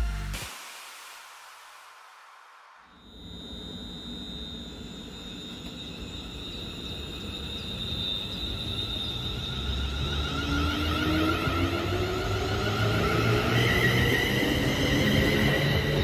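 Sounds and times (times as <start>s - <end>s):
high steady whine: 0.0s - 10.0s
train rumbling on rails: 5.2s - 16.0s.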